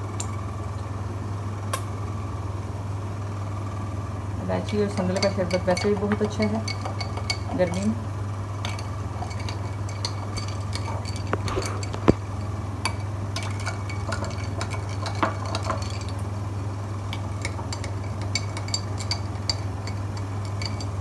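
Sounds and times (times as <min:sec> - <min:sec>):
steady low hum: 0:00.0 - 0:21.0
spoon clinking ice in glass: 0:05.2 - 0:07.9, 0:08.6 - 0:12.2, 0:12.8 - 0:16.2, 0:17.1 - 0:21.0.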